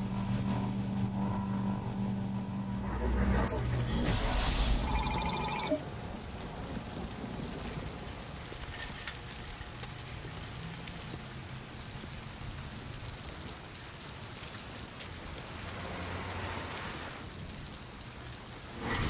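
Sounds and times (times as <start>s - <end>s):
low steady hum: 0.0s - 8.2s
rain falling on a wet street: 4.8s - 19.0s.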